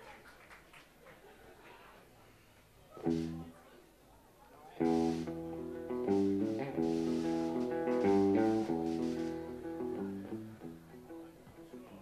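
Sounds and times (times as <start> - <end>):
electric guitar chords: 3.0 - 3.5, 4.8 - 11.6.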